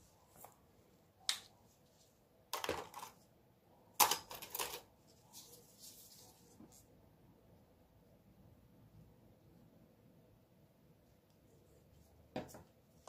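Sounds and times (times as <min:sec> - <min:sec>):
plastic containers clicking and clattering: 0:02.5 - 0:03.2, 0:04.0 - 0:04.9.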